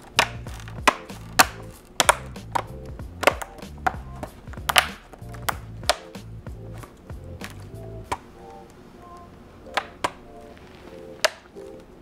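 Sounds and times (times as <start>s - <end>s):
plastic clips snapping: 0.0s - 6.2s, 9.7s - 10.2s, 11.2s - 11.9s
background music: 0.0s - 12.0s.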